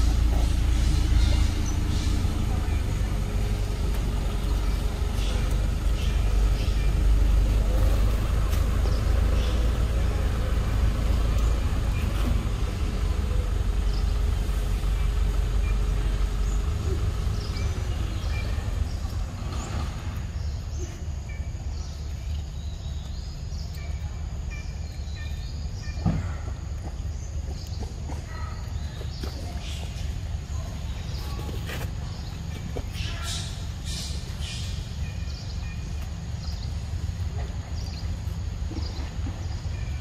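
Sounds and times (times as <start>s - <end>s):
vehicle engine running: 0.0s - 40.0s
faint high chirps and clicks: 21.3s - 26.0s, 32.9s - 39.0s.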